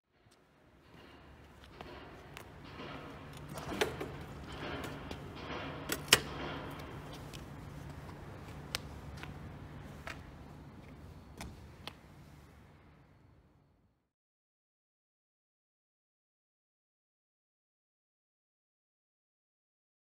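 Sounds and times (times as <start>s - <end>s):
steady low hum: 0.1s - 14.0s.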